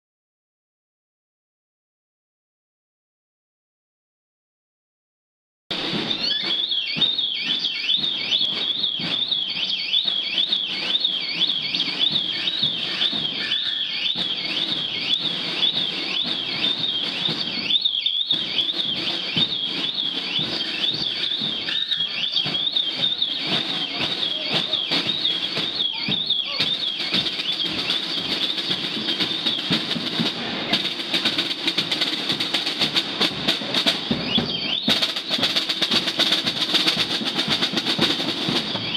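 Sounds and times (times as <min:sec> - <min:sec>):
street noise: 0:05.7 - 0:38.9
warbling alarm tone: 0:06.0 - 0:32.8.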